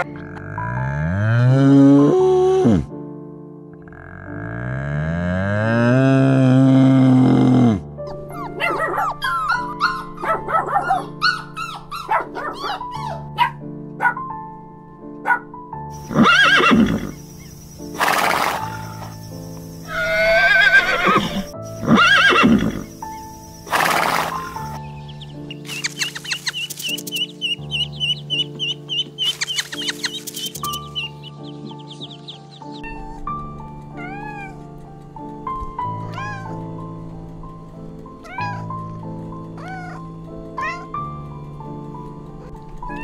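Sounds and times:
background music: 0.0 - 43.0
horse neighing: 16.0 - 17.3, 17.9 - 19.2, 19.8 - 23.0, 23.7 - 24.8
kitten meowing: 34.0 - 34.6, 36.0 - 36.6, 38.2 - 38.8.

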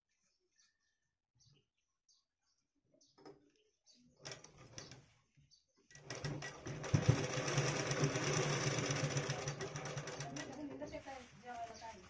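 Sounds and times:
sewing machine stitching: 5.9 - 10.8
fabric rustling: 10.4 - 12.0.

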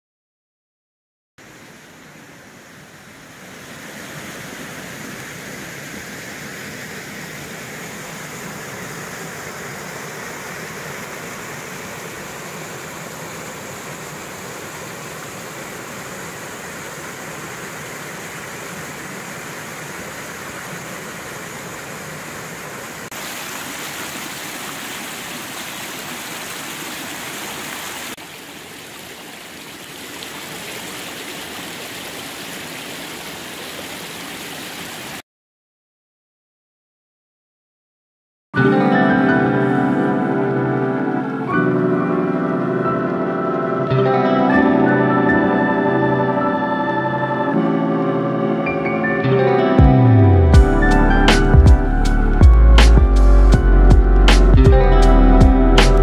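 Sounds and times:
stream rushing over stones: 1.4 - 35.2.

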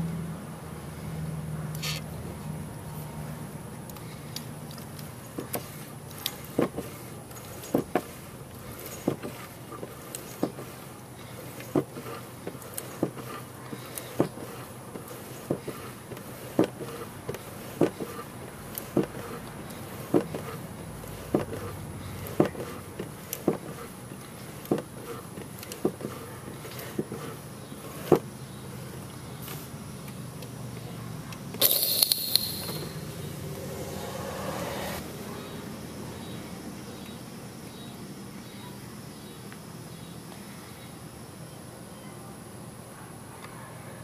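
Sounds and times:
hand pump clicking: 31.6 - 33.0.

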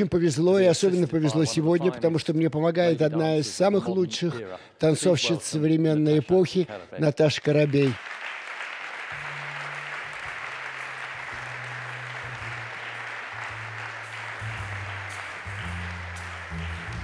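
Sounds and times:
audience applauding: 7.6 - 17.0
slow music with bass notes: 9.2 - 17.0.

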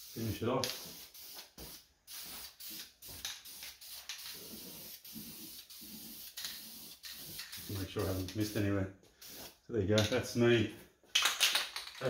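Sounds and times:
aerosol spray can hissing: 0.0 - 8.6.

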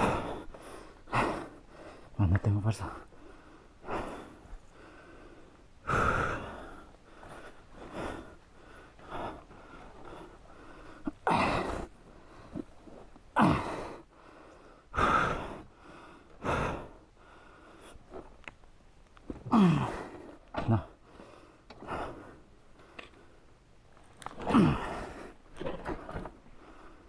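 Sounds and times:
man breathing hard and gasping: 0.0 - 2.2, 3.0 - 18.2, 19.4 - 23.4, 24.4 - 27.0.

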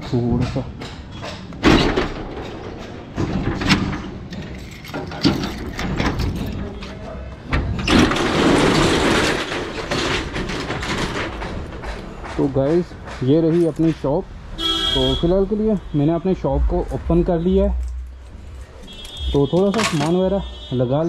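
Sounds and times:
sharp metallic knocks: 0.0 - 6.6, 7.5 - 20.4
roller shutter rattling: 1.1 - 14.3
padlocks being unlocked: 3.6 - 7.0, 18.8 - 20.4
keys clinking: 4.3 - 6.7.

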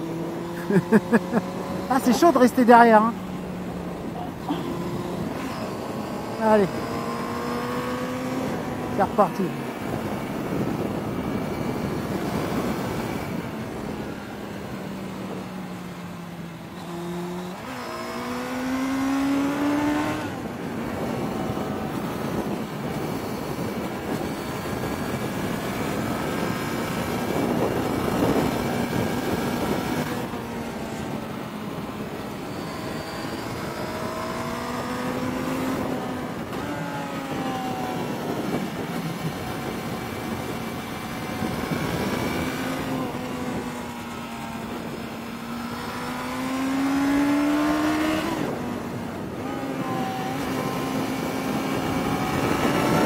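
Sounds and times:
motorcycle engine: 0.0 - 53.0
wind and road noise: 0.0 - 53.0.

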